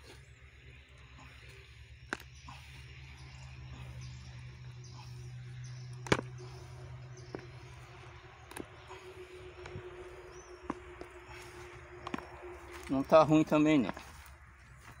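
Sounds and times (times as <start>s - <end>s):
faint low hum: 0.0s - 15.0s
roots snapping in dry soil: 0.9s - 2.6s, 5.6s - 15.0s.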